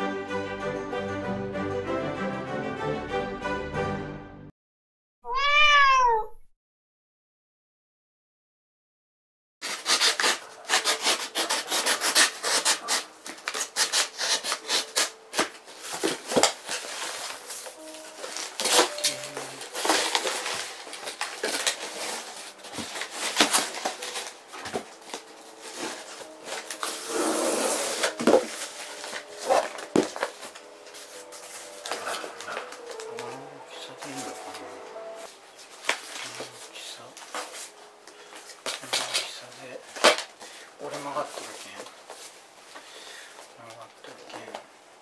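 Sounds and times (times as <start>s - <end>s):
box cutter slicing cardboard: 9.6s - 16.5s
cardboard panels rustling: 9.6s - 33.3s.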